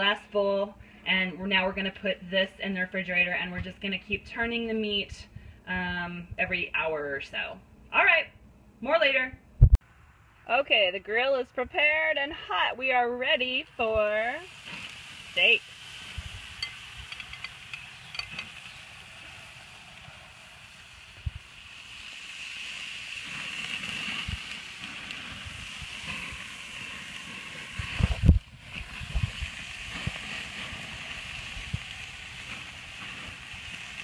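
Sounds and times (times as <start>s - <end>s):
steaks sizzling on a grill: 13.3s - 34.0s
wind rumble on microphone: 21.1s - 21.6s, 23.9s - 34.0s.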